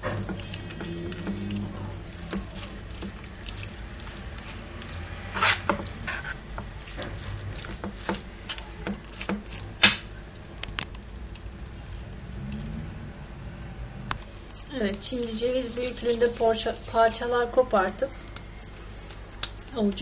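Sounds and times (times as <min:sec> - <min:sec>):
metal spoon scraping pan: 0:00.0 - 0:09.8.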